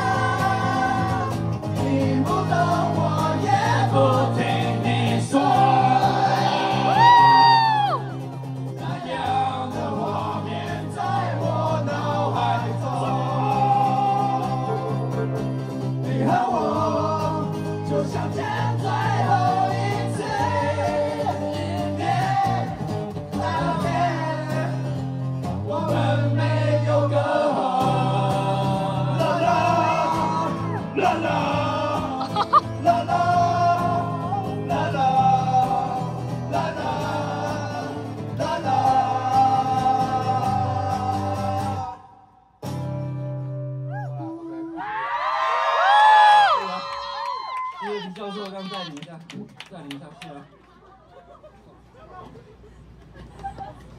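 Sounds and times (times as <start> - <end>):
strummed acoustic guitar: 0.0 - 7.0, 8.0 - 42.0, 42.6 - 43.9
men singing in chorus: 0.0 - 7.3, 8.8 - 15.0, 16.0 - 24.8, 25.6 - 42.2.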